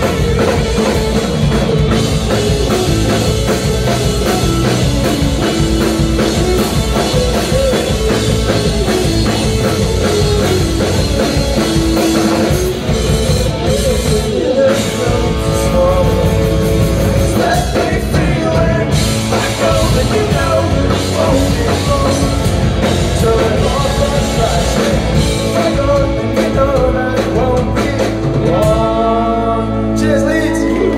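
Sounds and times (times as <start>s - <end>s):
bass guitar: 0.0s - 30.9s
drum kit: 0.0s - 30.9s
electric guitars: 0.0s - 30.9s
man singing: 12.9s - 30.9s.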